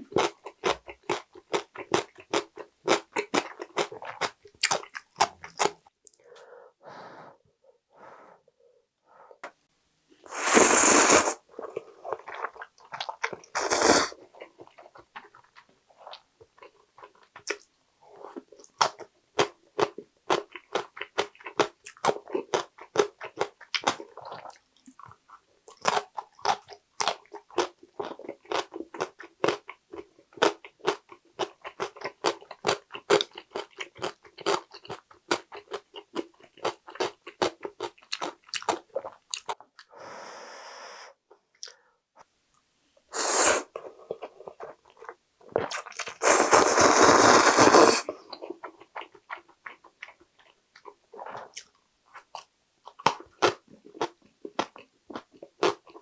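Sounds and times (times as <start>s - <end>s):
crunchy chewing: 0.0s - 6.2s, 18.3s - 39.9s
slurping noodles: 10.3s - 12.6s, 13.4s - 14.2s, 43.1s - 44.8s, 45.6s - 48.2s.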